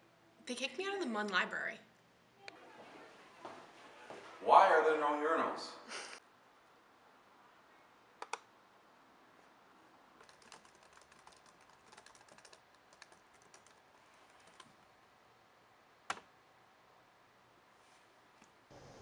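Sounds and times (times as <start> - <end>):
typing on keyboard: 10.2 - 14.7.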